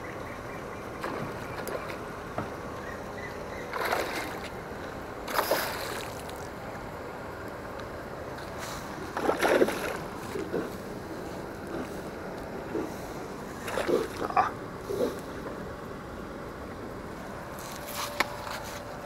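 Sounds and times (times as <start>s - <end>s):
fish splashing in water: 3.6s - 4.6s, 5.2s - 6.6s, 8.8s - 10.8s, 13.5s - 15.1s.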